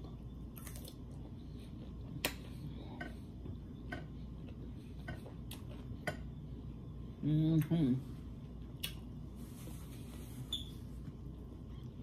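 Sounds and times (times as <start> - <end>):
chewing with mouth clicks: 0.0 - 3.2, 4.4 - 6.0
low steady hum: 0.0 - 12.0.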